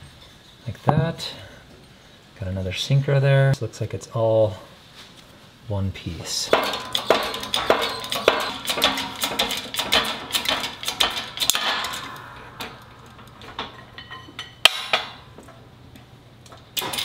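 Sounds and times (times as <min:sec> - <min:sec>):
hand pump jack clicking: 0:06.6 - 0:11.6.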